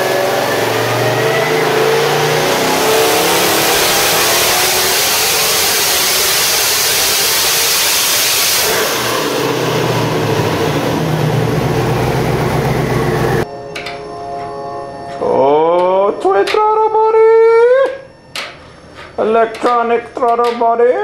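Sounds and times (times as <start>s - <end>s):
engine running at high revs: 0.0s - 13.5s.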